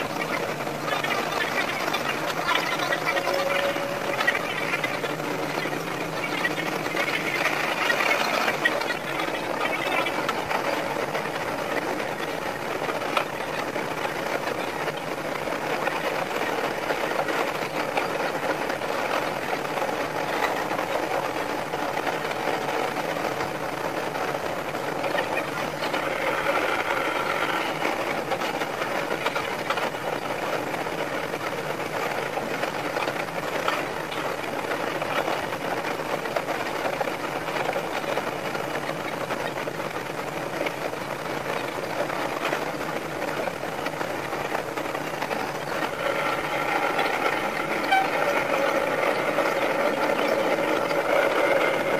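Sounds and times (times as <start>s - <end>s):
high whine: 0.0s - 23.2s, 43.3s - 51.9s
fast rattling train chatter: 0.0s - 51.9s.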